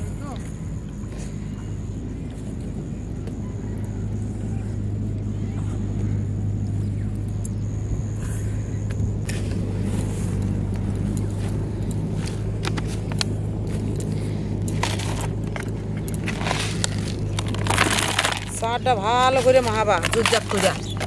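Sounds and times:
steady low hum: 0:00.0 - 0:21.0
plastic jar clicks and scrapes: 0:14.7 - 0:18.6, 0:19.4 - 0:21.0.

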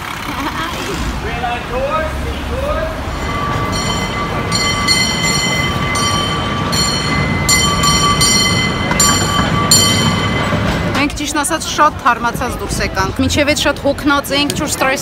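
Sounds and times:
low street rumble: 0:00.0 - 0:15.0
cable car whine: 0:01.2 - 0:13.9.

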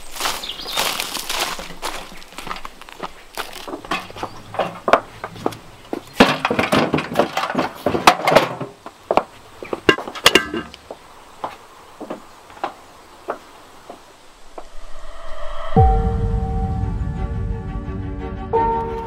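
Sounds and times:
footsteps: 0:00.0 - 0:08.2
clattering knocks: 0:03.9 - 0:08.8.

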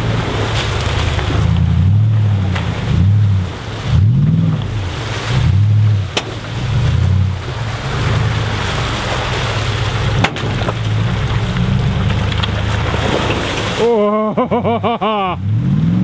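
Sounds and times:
vehicle engine revving: 0:00.0 - 0:16.0
sharp knocks: 0:06.1 - 0:06.7, 0:10.1 - 0:11.0.

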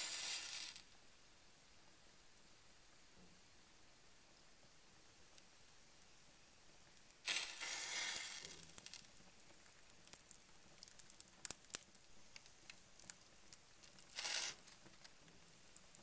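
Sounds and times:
paper burning crackling: 0:00.0 - 0:01.0, 0:06.8 - 0:16.0
fire popping: 0:06.8 - 0:16.0.

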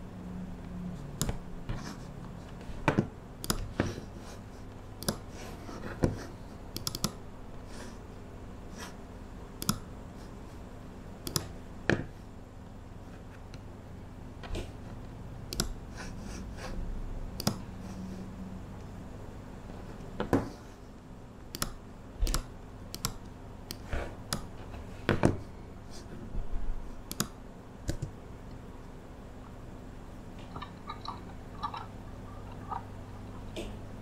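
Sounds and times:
steady low hum: 0:00.0 - 0:34.0
keyboard and mouse clicks: 0:01.2 - 0:01.4, 0:02.9 - 0:03.8, 0:05.0 - 0:05.3, 0:06.7 - 0:07.2, 0:09.6 - 0:09.9, 0:11.2 - 0:12.1, 0:15.5 - 0:15.8, 0:17.4 - 0:17.6, 0:21.5 - 0:24.5, 0:27.1 - 0:28.2.

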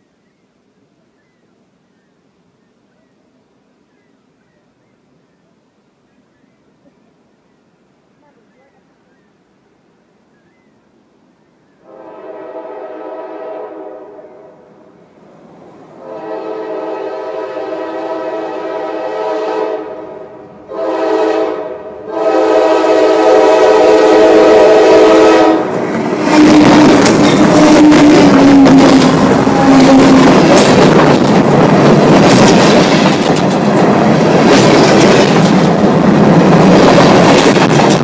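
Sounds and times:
train horn blasts: 0:11.8 - 0:14.7, 0:16.0 - 0:30.4
train wheels rushing on rails: 0:11.9 - 0:38.0.

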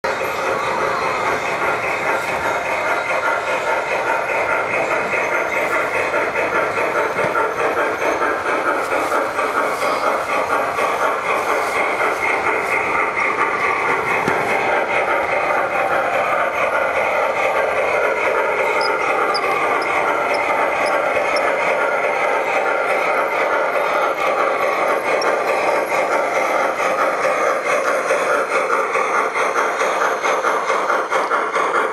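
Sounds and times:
model train wheels clattering: 0:00.1 - 0:31.9.

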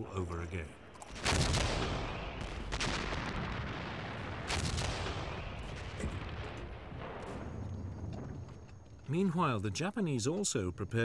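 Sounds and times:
artillery gun firing: 0:01.0 - 0:08.2.

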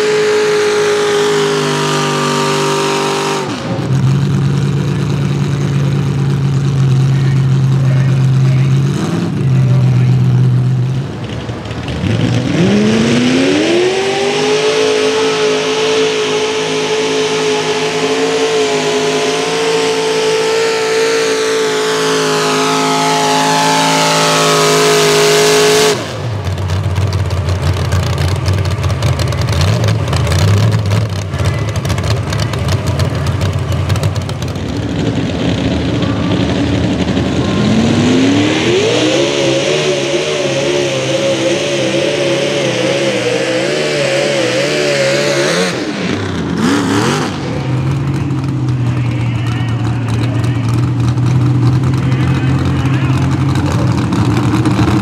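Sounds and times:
engine crackling: 0:00.0 - 0:55.0
tractor engine revving: 0:00.0 - 0:55.0
another engine revving: 0:11.9 - 0:26.7, 0:29.4 - 0:55.0.

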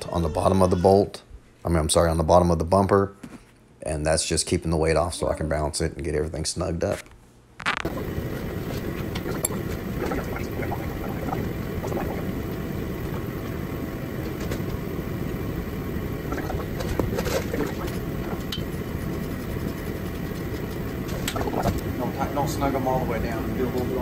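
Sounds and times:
heater running: 0:07.6 - 0:24.0.

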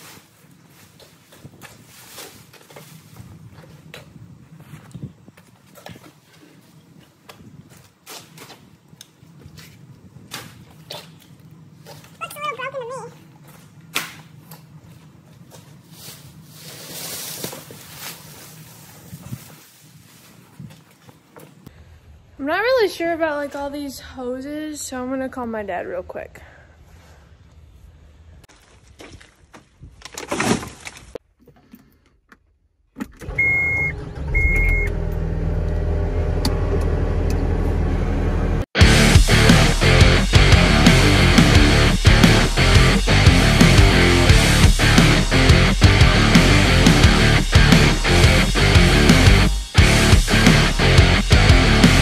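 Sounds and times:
handling rustle: 0:13.4 - 0:21.6
plastic sheeting crinkling: 0:15.8 - 0:20.9
engine starting and running: 0:32.9 - 0:52.0
short warning beeps: 0:33.4 - 0:34.9.

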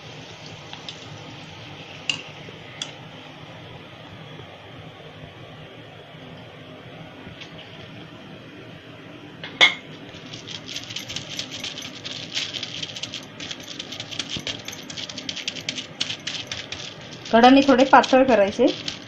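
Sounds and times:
hands patting dough on plastic: 0:10.2 - 0:19.0.

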